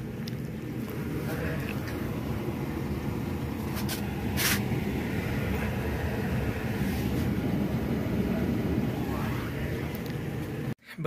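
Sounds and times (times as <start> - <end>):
gas burner rumble: 0.0 - 10.8
short hiss: 3.8 - 4.7.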